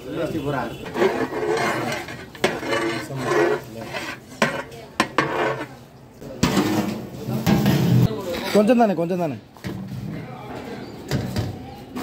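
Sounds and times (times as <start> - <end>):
metal ladle scraping a pot: 0.8 - 5.8.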